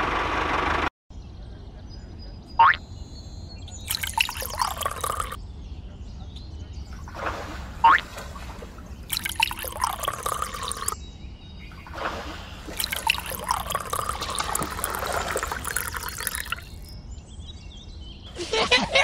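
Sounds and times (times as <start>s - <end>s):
water pouring and splashing: 3.9s - 5.4s, 7.0s - 11.0s, 11.8s - 16.9s.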